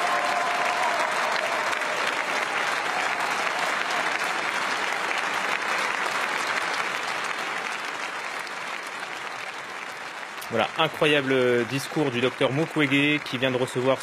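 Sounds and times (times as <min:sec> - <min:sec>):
large audience applauding: 0:00.0 - 0:14.0.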